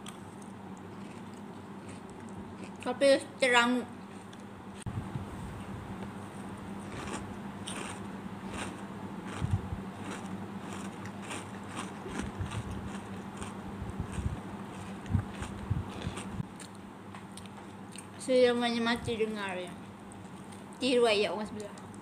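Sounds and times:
person chewing: 0.0 - 2.9, 6.8 - 18.1.

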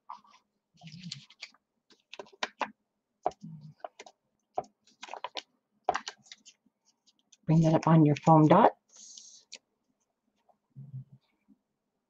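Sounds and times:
paper rustling: 0.1 - 2.7, 3.8 - 7.4
paper clicks and taps on table: 1.0 - 6.4.

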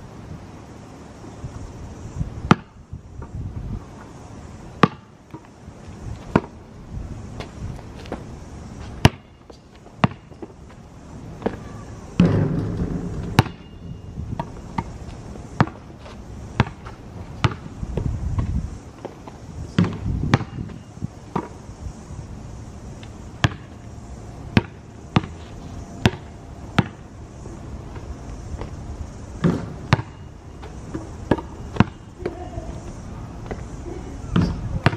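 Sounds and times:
basketball bouncing on asphalt: 2.4 - 3.4, 4.8 - 5.6, 6.2 - 6.6, 7.4 - 21.6, 23.0 - 23.9, 24.5 - 27.1, 29.4 - 32.4, 34.4 - 34.9
loud thud: 12.2 - 13.8.

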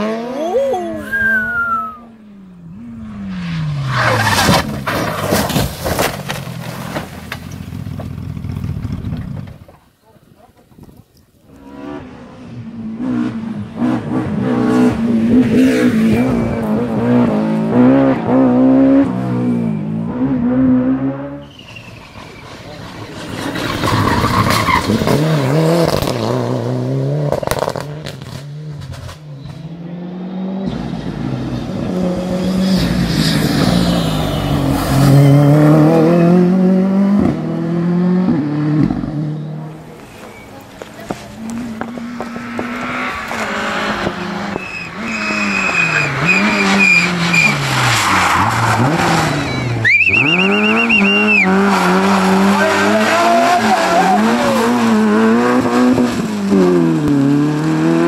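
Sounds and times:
rally car engines revving: 0.0 - 9.8, 11.4 - 58.0
tyre squealing: 21.4 - 25.6, 39.9 - 42.0, 44.5 - 55.1.

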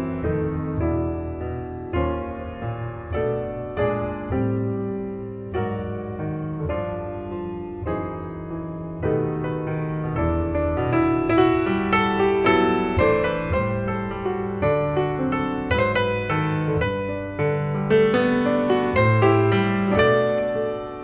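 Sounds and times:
background piano music: 0.0 - 21.0.

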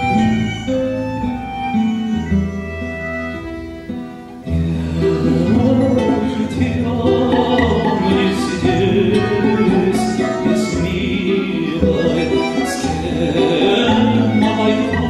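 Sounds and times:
button accordion: 0.0 - 15.0
plucked double bass: 0.0 - 15.0
violin: 0.0 - 15.0
man singing with vibrato: 4.5 - 15.0.

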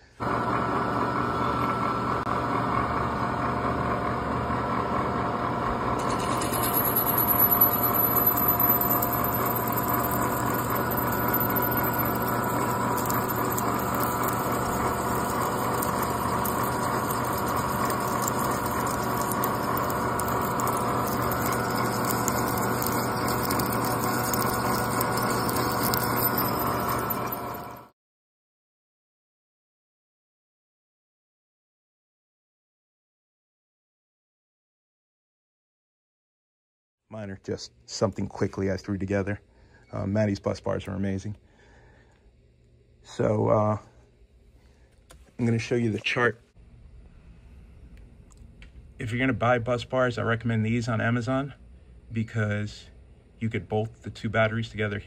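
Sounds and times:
drill cutting metal whine: 6.0 - 27.9.

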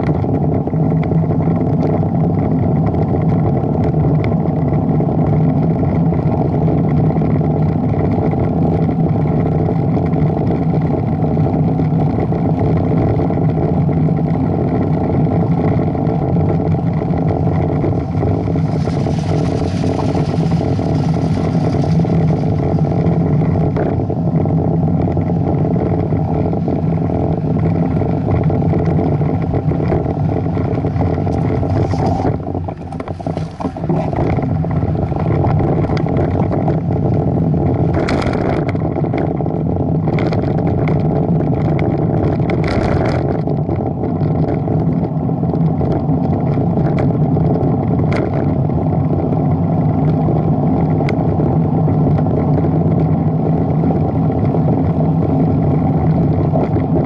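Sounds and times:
road and wind noise: 0.0 - 57.0
vehicle engine running: 0.0 - 57.0
wind gusts hissing: 16.4 - 37.9.

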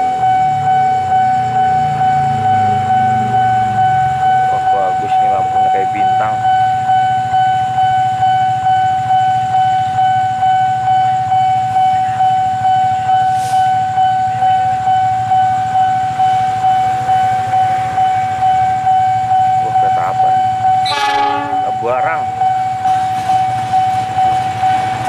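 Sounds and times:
level crossing alarm pulsing: 0.0 - 25.0.

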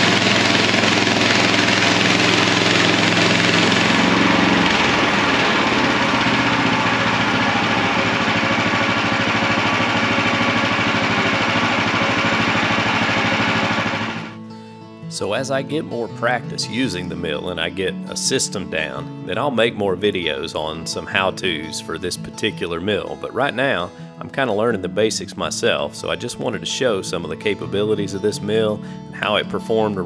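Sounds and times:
gasoline engine running: 0.0 - 14.4.

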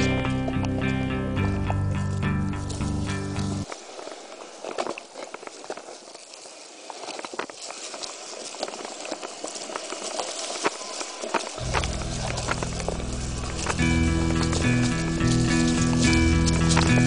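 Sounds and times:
music: 0.0 - 3.6, 11.6 - 17.0
bike rattling and clicking: 0.0 - 3.7, 7.0 - 17.0
bike tyres crunching over gravel: 0.0 - 17.0.

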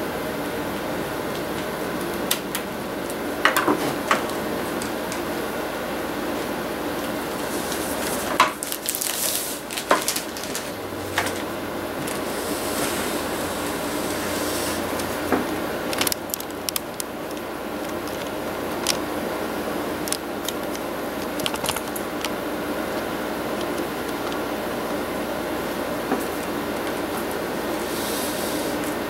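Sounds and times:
room hum: 0.0 - 29.0
plastic parts clicking: 15.9 - 19.0, 20.0 - 24.4.

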